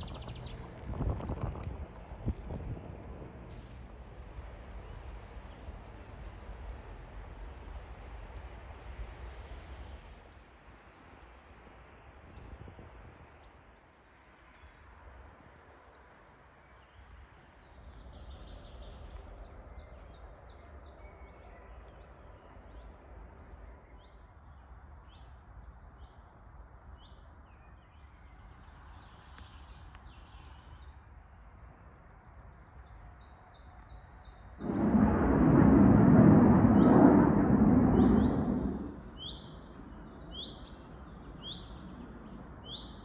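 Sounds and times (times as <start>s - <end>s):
small birds singing: 0.0s - 2.5s, 12.1s - 31.8s, 32.6s - 34.7s, 39.0s - 43.0s
low steady rumble: 0.0s - 10.4s, 34.6s - 42.7s.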